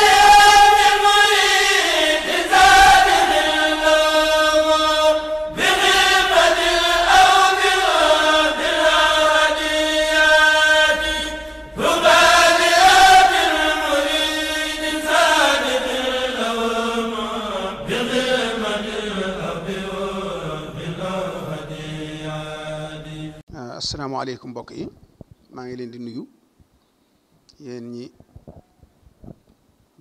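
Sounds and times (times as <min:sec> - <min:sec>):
vocal chanting held notes: 0:00.0 - 0:23.4.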